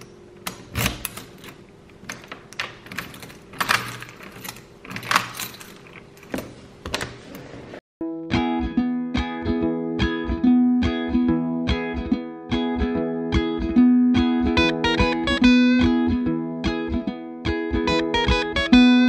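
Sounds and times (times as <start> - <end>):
keyring jangling: 0.7 - 6.3
plucked ukulele music: 8.0 - 19.0.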